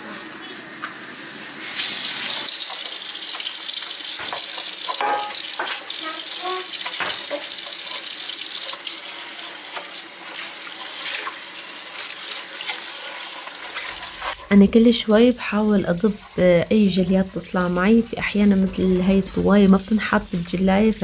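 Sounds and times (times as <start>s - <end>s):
dishes knocking and clinking: 4.2s - 5.8s, 6.9s - 7.5s.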